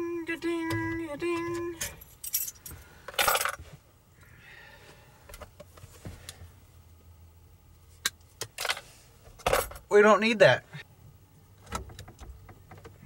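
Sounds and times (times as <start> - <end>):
small metal parts clinking: 1.8 - 3.6.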